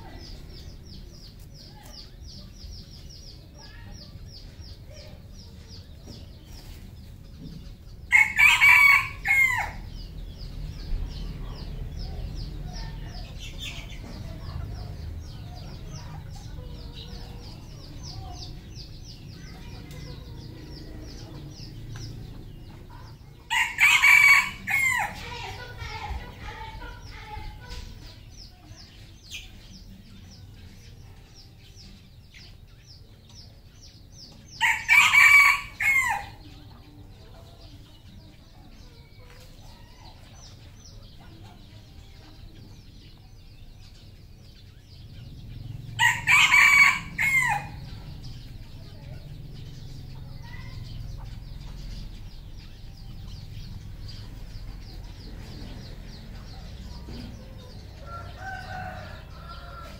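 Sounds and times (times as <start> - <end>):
rooster crowing: 8.1 - 9.8, 23.5 - 25.2, 34.6 - 36.4, 46.0 - 47.8, 58.0 - 59.9.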